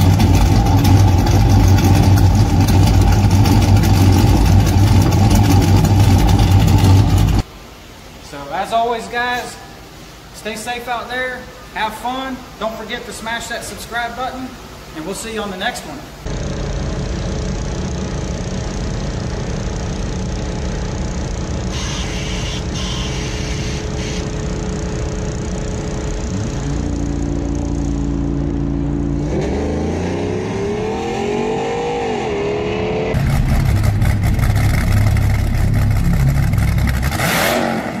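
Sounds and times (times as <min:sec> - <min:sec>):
engine rumbling and revving: 0:00.0 - 0:07.4, 0:16.3 - 0:38.0
loud harsh noise: 0:16.3 - 0:27.8.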